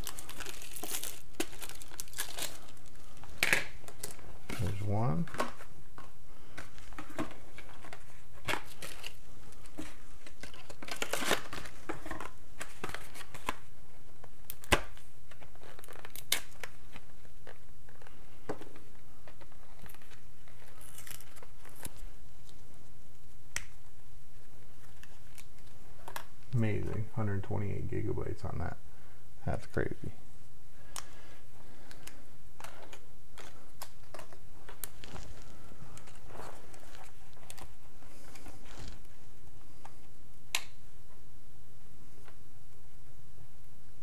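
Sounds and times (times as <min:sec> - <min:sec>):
plastic packaging crinkling: 0:00.0 - 0:05.6, 0:06.5 - 0:13.7, 0:14.5 - 0:18.2, 0:19.3 - 0:22.6, 0:31.8 - 0:39.2.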